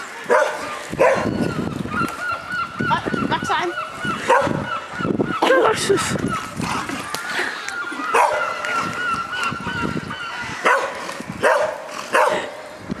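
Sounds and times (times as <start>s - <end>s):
dog barking: 0.3s - 1.4s, 4.2s - 4.7s, 8.1s - 8.6s, 10.6s - 12.6s.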